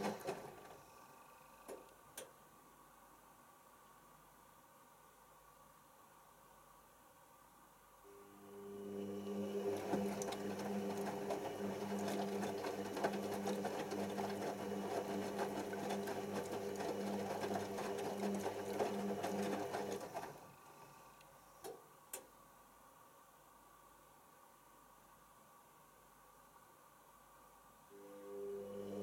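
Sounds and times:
washing machine tumbling laundry: 0.0 - 0.9, 8.7 - 20.8, 28.1 - 29.0.

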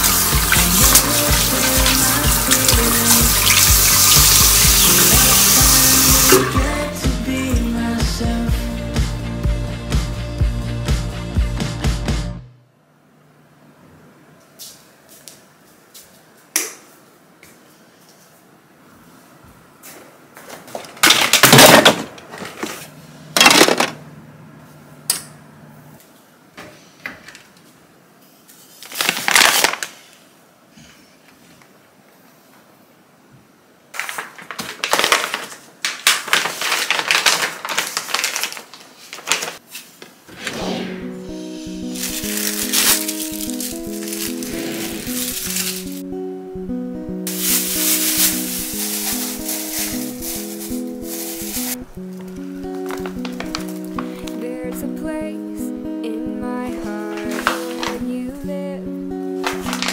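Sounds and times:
paper bag rustling: 0.0 - 6.4, 28.6 - 30.1, 34.0 - 40.2, 41.7 - 46.0, 47.3 - 54.4, 56.8 - 58.1, 59.4 - 59.9
tap water running into basin: 0.0 - 6.6
background music with steady beat: 0.0 - 12.6, 41.0 - 59.9
plastic toy bricks clattering: 23.4 - 24.0.

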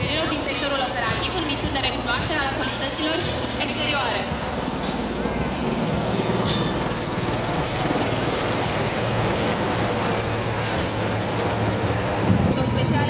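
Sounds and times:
helicopters flying overhead: 0.0 - 13.0.

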